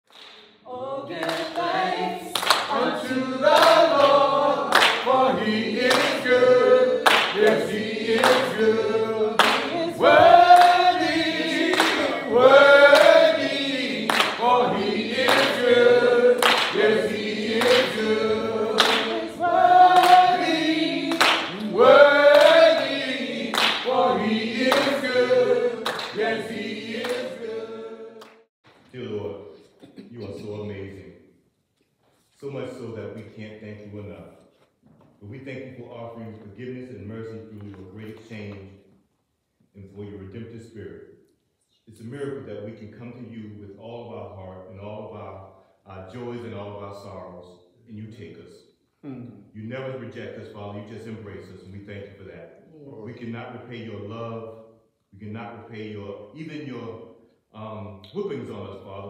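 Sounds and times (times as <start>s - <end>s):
handclaps: 0.1s - 0.5s, 1.1s - 6.4s, 7.0s - 8.7s, 9.4s - 12.2s, 12.8s - 15.7s, 16.4s - 18.1s, 18.7s - 24.0s, 24.6s - 27.4s
gospel choir singing: 0.5s - 28.5s.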